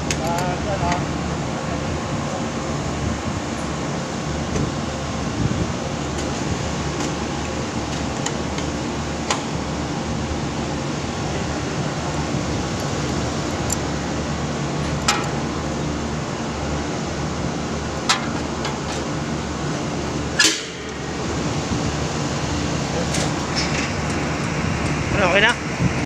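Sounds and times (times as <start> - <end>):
man talking: 0.0 - 2.5, 25.1 - 25.6
air conditioner fans humming: 0.0 - 26.0.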